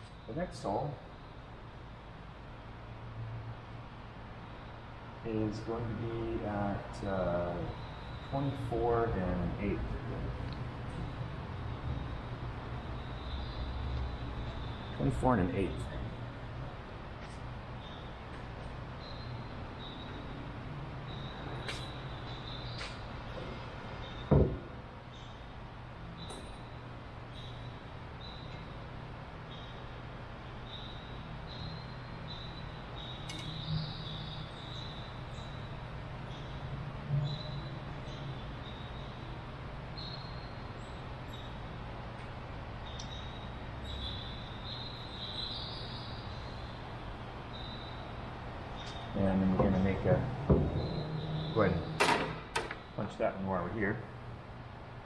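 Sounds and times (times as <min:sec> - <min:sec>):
knocks: 0:24.3 - 0:24.8, 0:50.4 - 0:52.8
low hum: 0:46.1 - 0:53.0.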